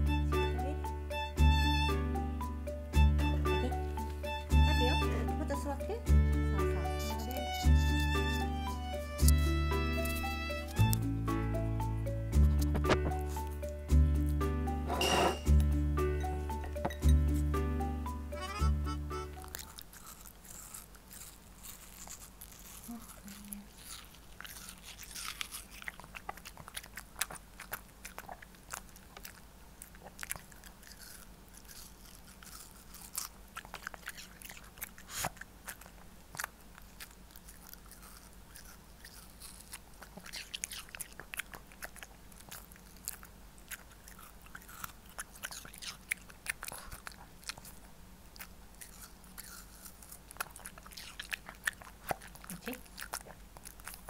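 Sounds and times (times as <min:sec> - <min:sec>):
dog biting and chewing: 0:03.5 - 0:05.9, 0:06.6 - 0:11.1, 0:12.4 - 0:15.6, 0:16.3 - 0:54.0.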